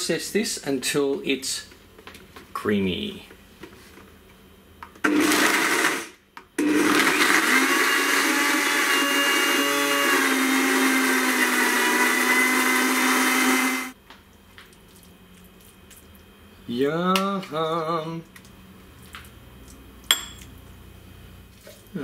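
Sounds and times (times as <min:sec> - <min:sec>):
blender chopping: 0:05.0 - 0:14.0.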